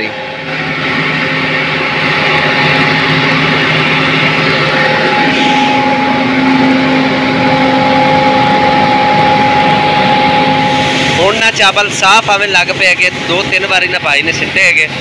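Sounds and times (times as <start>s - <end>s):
rice huller machine droning: 0.0s - 15.0s.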